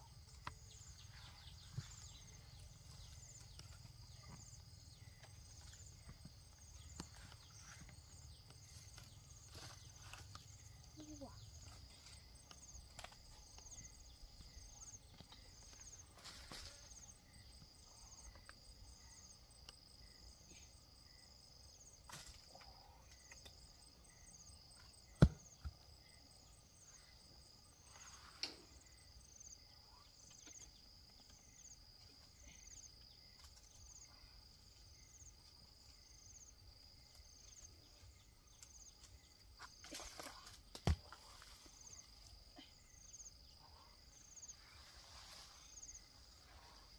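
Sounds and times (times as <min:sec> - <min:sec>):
insect chirping: 0:00.0 - 0:46.9
leaves and branches rustling: 0:00.1 - 0:17.5, 0:33.3 - 0:42.5, 0:44.2 - 0:46.9.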